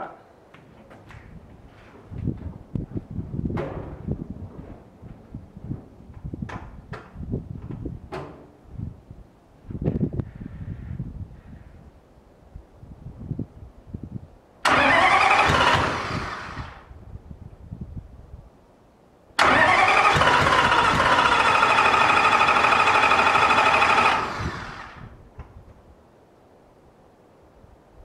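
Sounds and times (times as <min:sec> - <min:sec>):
diesel engine cranking on starter: 0:14.6 - 0:16.9, 0:19.4 - 0:25.2.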